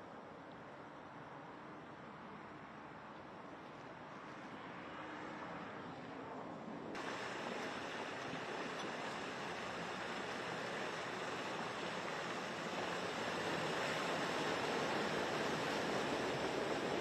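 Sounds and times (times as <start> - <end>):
truck driving through water: 7.0 - 17.0
water rushing and splashing: 7.0 - 17.0.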